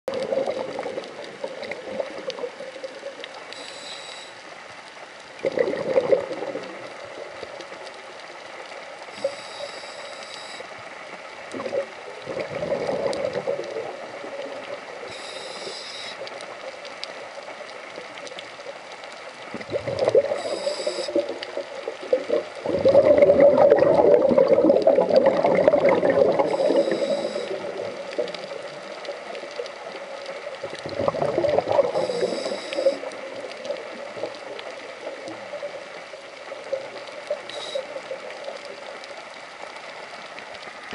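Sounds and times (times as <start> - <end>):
exhaled bubbles bursting: 0.1 - 3.2, 5.4 - 7.4, 11.5 - 14.8, 19.5 - 35.8
hissing regulator inhale: 3.6 - 4.5, 9.2 - 10.7, 15.1 - 16.2, 20.3 - 21.3, 26.5 - 27.7, 31.9 - 33.1, 37.5 - 37.9.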